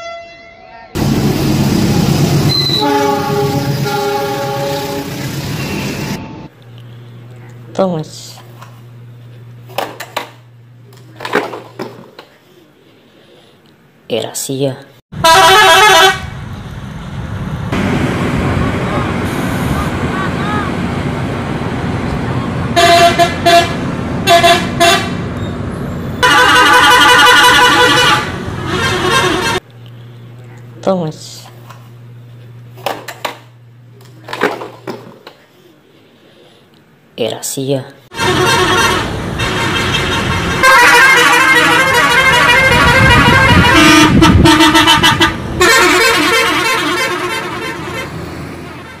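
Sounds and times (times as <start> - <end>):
bus horn toots: 0.0 - 1.0, 2.5 - 6.5, 15.2 - 16.4, 22.7 - 25.2, 26.2 - 29.7, 38.1 - 49.0
multi-tone musical horn: 0.0 - 1.0, 2.6 - 5.7, 15.2 - 16.3, 22.8 - 25.2, 26.2 - 29.7, 38.1 - 49.0
diesel engine rumble: 1.0 - 14.0, 15.2 - 37.1, 38.1 - 49.0.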